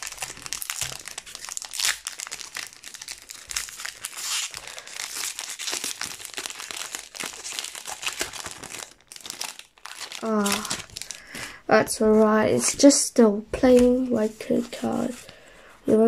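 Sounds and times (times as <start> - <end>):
foil wrapper crinkling and tearing: 0.0 - 11.4.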